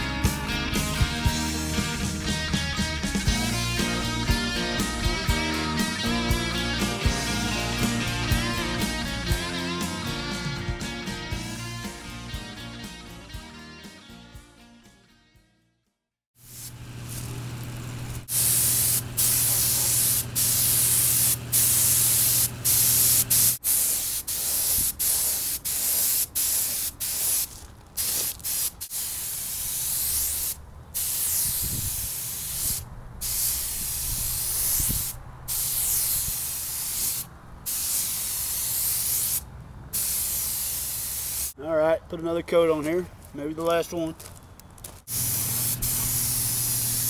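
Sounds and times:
air spray gun hissing: 16.4s - 39.4s, 40.0s - 41.6s, 45.1s - 47.0s.

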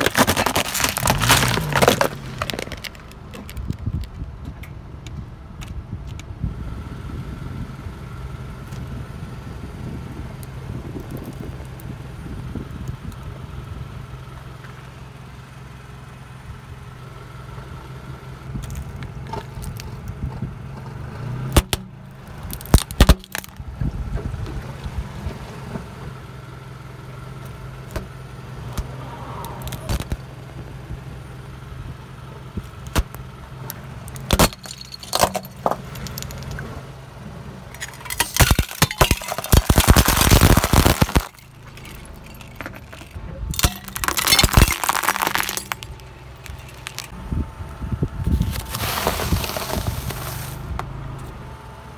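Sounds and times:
tyre crushing brittle plastic: 0.0s - 4.1s, 22.4s - 23.6s, 34.1s - 36.6s, 37.7s - 47.1s, 48.3s - 50.6s
plastic cracking under tyre: 0.0s - 4.2s, 18.6s - 20.3s, 21.5s - 23.7s, 29.6s - 30.2s, 32.6s - 36.6s, 37.8s - 47.2s, 48.3s - 50.6s
car engine idling: 0.0s - 5.6s, 6.8s - 51.9s.

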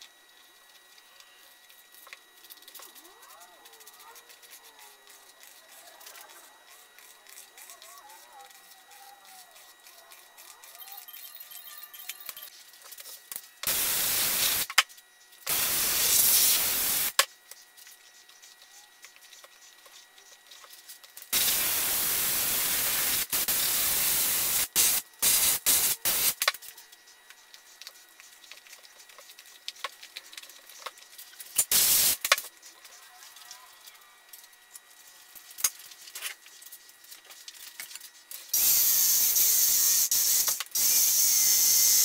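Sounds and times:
spray gun hissing: 13.6s - 14.7s, 15.5s - 17.2s, 21.3s - 26.4s, 31.7s - 32.2s.

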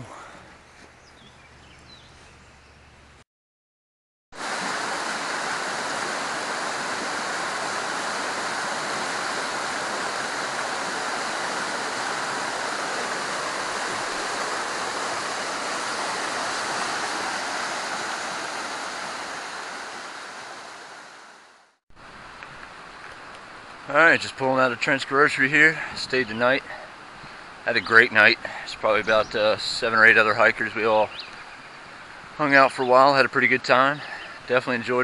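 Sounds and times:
creek water rushing over rocks: 4.4s - 28.7s.

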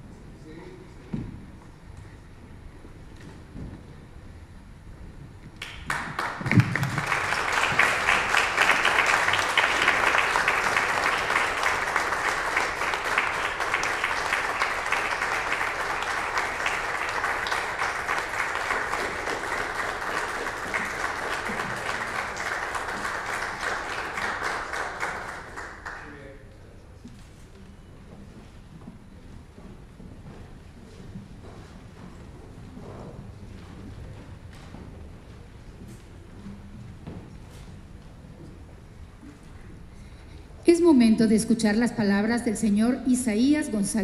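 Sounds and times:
audience applauding: 5.6s - 26.4s.

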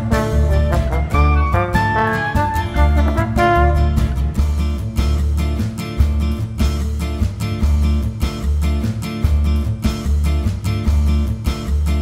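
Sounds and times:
guitar music: 0.0s - 12.0s
rhythmic bass line: 0.0s - 12.0s.

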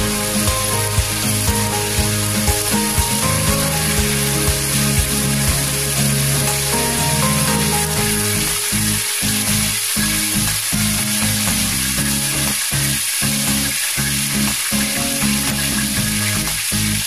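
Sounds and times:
background music: 0.0s - 10.7s
hot oil sizzling in a pot: 0.0s - 17.0s.

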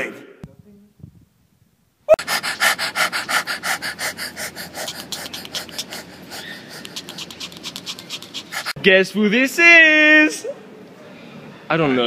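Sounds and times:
person panting rapidly: 2.1s - 8.8s.

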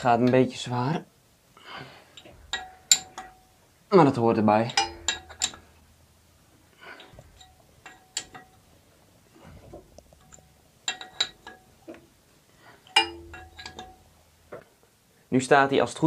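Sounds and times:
metallic clinks and knocks: 2.2s - 3.7s, 4.6s - 6.1s, 6.9s - 12.2s, 12.8s - 14.6s.

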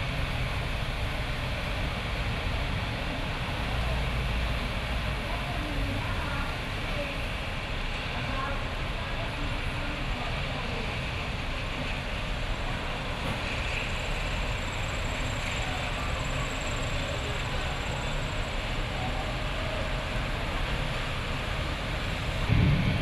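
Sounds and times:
heavy rain on street: 0.0s - 23.0s
passing traffic rumble: 0.0s - 23.0s.

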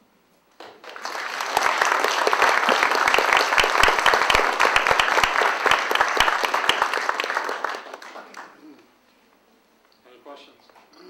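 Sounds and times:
audience applauding: 0.6s - 8.7s.

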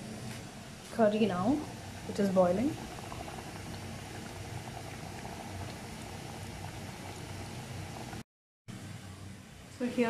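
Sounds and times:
curry bubbling in a pot: 1.0s - 8.2s.

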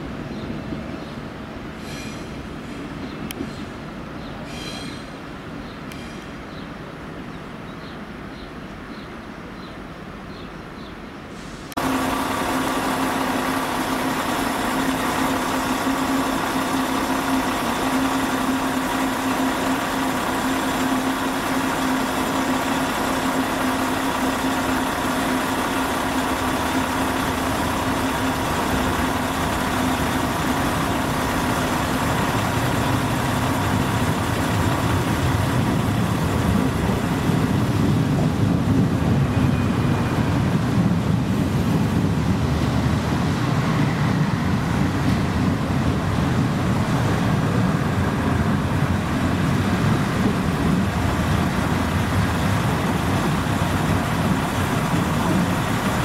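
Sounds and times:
deep rumble of trains moving: 0.0s - 56.0s
train engine idling: 11.4s - 56.0s.

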